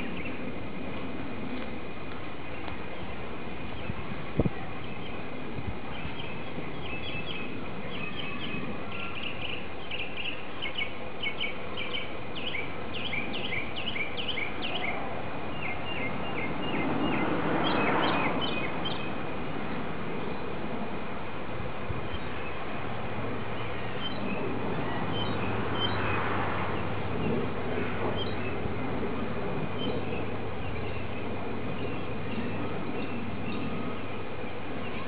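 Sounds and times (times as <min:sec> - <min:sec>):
bird chirping: 0:05.9 - 0:19.1.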